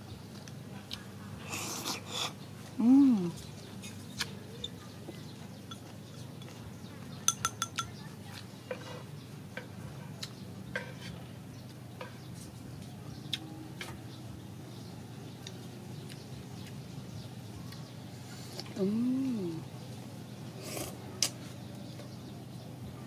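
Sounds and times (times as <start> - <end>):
chopsticks clinking on bowl: 5.6 - 6.6, 7.2 - 8.0.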